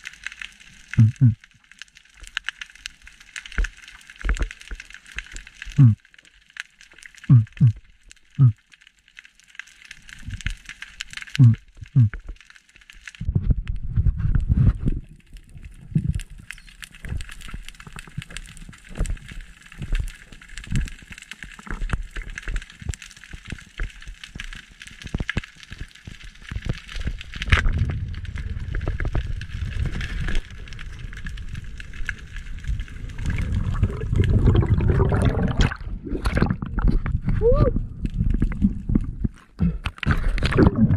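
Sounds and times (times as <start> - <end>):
underwater clicks and crackles: 0.0 - 40.9
low rushing water rumble: 27.4 - 40.9.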